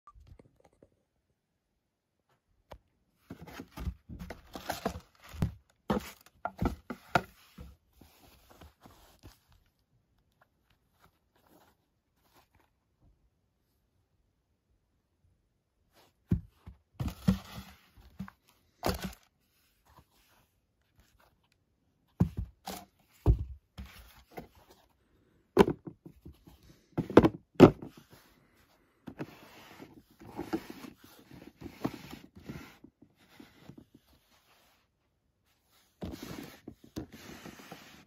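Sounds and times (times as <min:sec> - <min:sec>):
rubbing and rustling: 0:03.2 - 0:13.0, 0:27.8 - 0:38.0
shoes and box thudding: 0:22.2 - 0:24.6.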